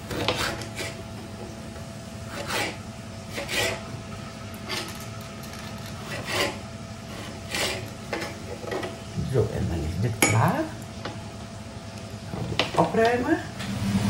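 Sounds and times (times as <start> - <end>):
knife scraping on cutting board: 0.0 - 1.0, 2.3 - 3.9, 4.6 - 5.0, 5.6 - 8.9.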